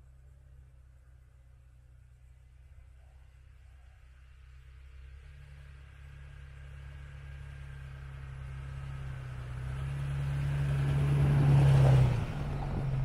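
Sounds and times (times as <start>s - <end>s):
pickup engine hum: 0.0s - 13.0s
tyres rushing through snow: 8.2s - 13.0s.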